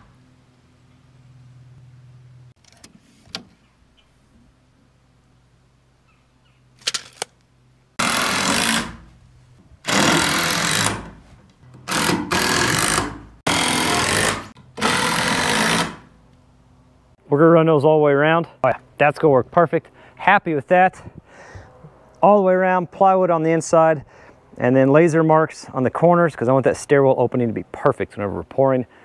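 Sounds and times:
impact driver driving screws: 0:08.0 - 0:09.0, 0:09.8 - 0:11.2, 0:11.8 - 0:16.0.

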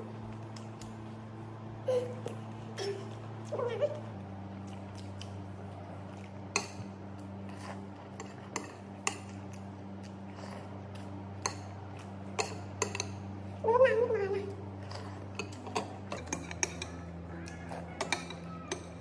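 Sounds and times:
steady low hum: 0:00.0 - 0:19.0
utensil clicking against dish: 0:12.4 - 0:13.2, 0:15.4 - 0:19.0.

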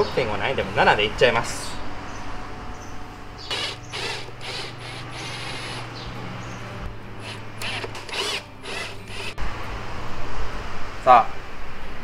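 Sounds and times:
electric drill motor hum: 0:03.4 - 0:06.0, 0:07.2 - 0:09.4
drill bit grinding into plastic: 0:03.5 - 0:05.9, 0:07.2 - 0:09.3.

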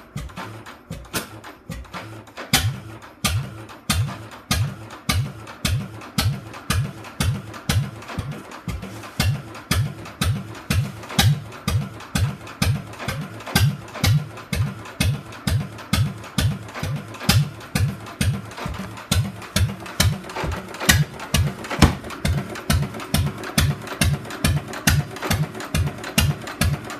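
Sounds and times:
engine turning over slowly: 0:00.0 - 0:26.9.

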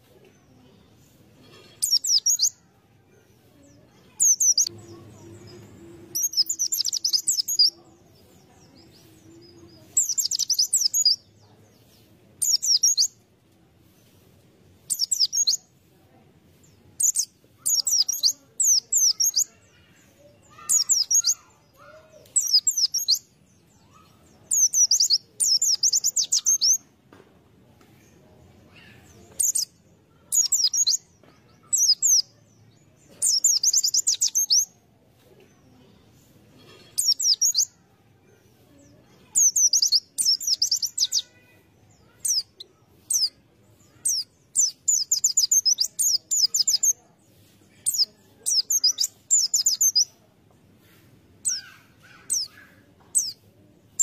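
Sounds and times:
bird twittering: 0:14.9 - 0:15.6.

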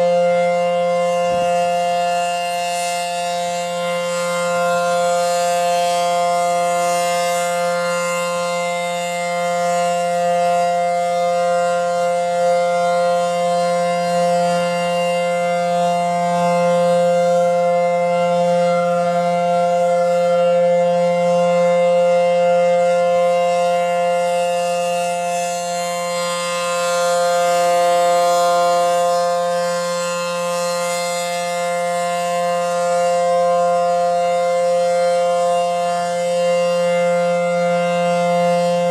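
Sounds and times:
warning siren steady tone: 0:00.0 - 0:38.9.

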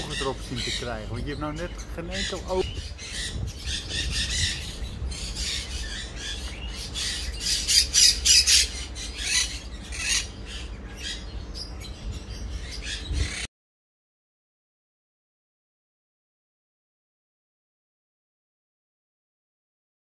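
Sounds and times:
parakeets squawking: 0:00.0 - 0:13.5.

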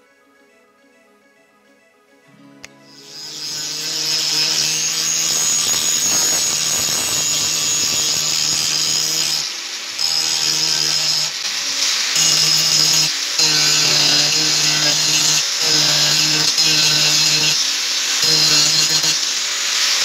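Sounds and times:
angle grinder grinding steel: 0:02.9 - 0:20.0.

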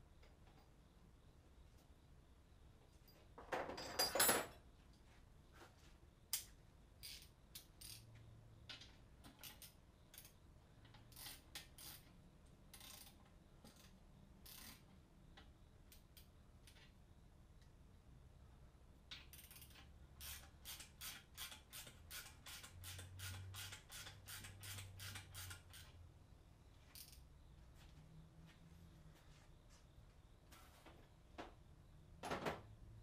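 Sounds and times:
hand tools clattering in a case: 0:03.4 - 0:04.6.

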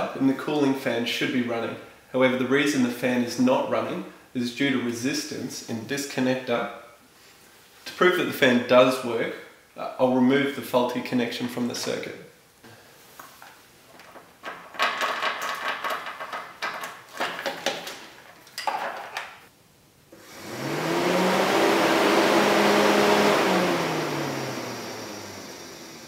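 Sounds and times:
wire connectors clicking and rustling: 0:13.2 - 0:19.5
electric cooling fan humming: 0:20.0 - 0:26.0.

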